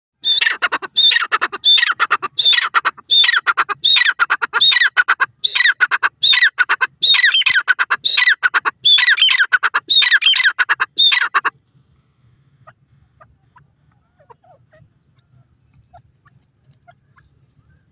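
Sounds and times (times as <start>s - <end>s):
bird calling with descending phrases: 0.2s - 11.5s.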